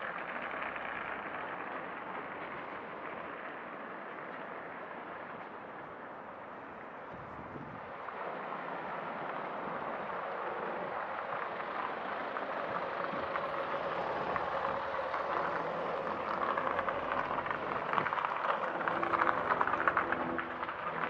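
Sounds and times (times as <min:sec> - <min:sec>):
faint engine hum: 0:00.0 - 0:21.0
tyres hissing on asphalt: 0:07.7 - 0:21.0.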